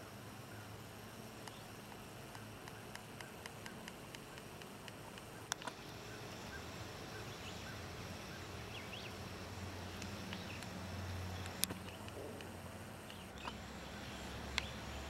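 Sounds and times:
cicadas droning: 0.0s - 15.0s
small clicks: 1.4s - 6.0s, 9.9s - 13.6s, 14.5s - 14.8s.

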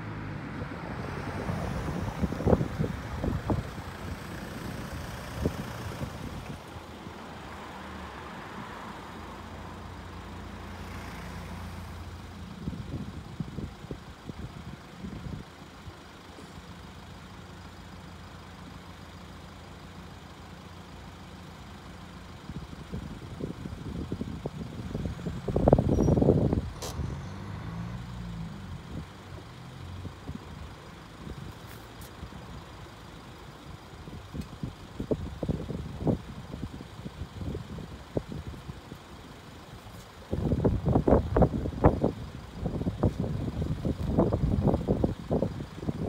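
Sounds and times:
wind buffeting microphone: 1.4s - 6.6s
car engine idling: 1.4s - 46.0s.

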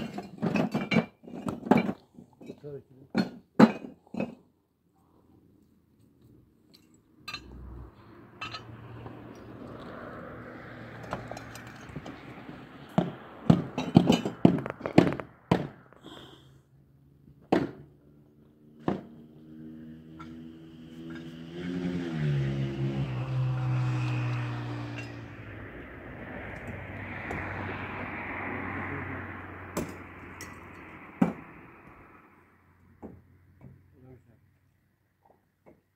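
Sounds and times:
hard objects knocking and clinking: 13.0s - 15.7s.

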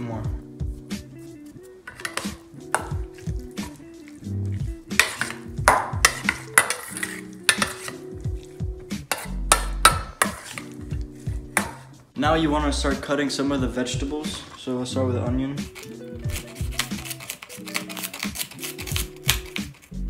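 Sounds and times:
metal spoon stirring meat in bowl: 1.2s - 12.0s, 15.7s - 19.8s
spoon clinking and scraping bowl: 1.8s - 8.4s, 9.0s - 11.9s, 15.7s - 19.8s.

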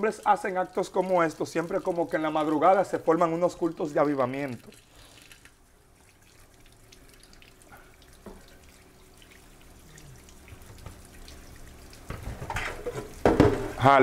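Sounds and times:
water dripping and trickling: 0.0s - 14.0s.

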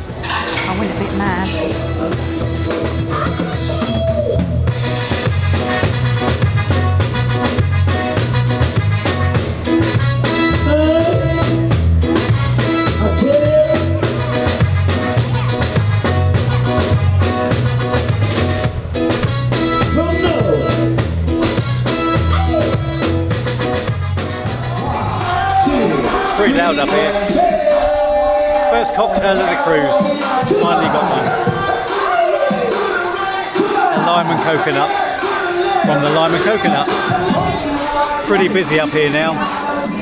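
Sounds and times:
drum kit and bass beat: 0.0s - 40.0s
person singing: 29.9s - 40.0s.

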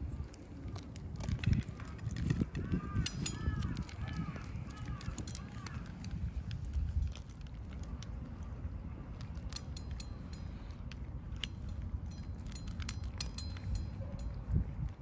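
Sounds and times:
cats chewing food: 0.0s - 15.0s
steady low rumble: 0.0s - 15.0s.

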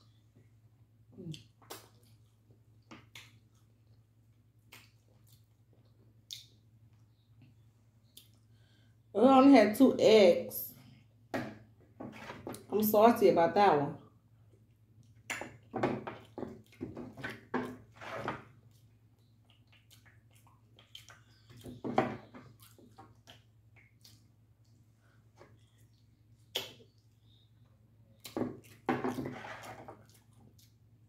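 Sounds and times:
wet smacking and chewing: 1.2s - 7.2s, 8.0s - 8.5s, 14.4s - 17.8s, 18.5s - 27.4s, 28.1s - 31.0s.

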